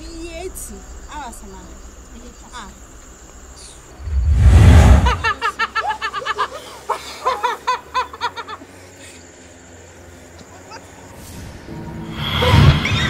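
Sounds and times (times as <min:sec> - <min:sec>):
crickets chirring: 0:00.0 - 0:13.0
loud whoosh with deep rumble: 0:04.0 - 0:05.4
rapid high-pitched laughter: 0:05.1 - 0:09.0.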